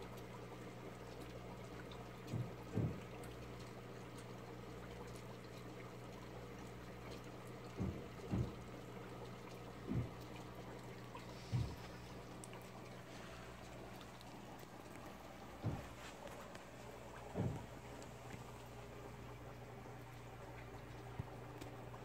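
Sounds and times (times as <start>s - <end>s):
water trickling from tank filter: 0.0s - 22.0s
soft low thumps: 7.7s - 8.7s, 9.8s - 12.3s, 13.6s - 21.4s.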